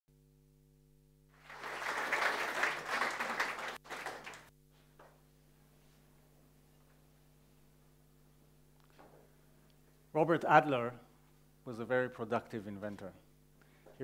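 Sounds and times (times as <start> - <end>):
low electrical hum: 0.1 - 14.0
audience applauding: 1.4 - 4.5.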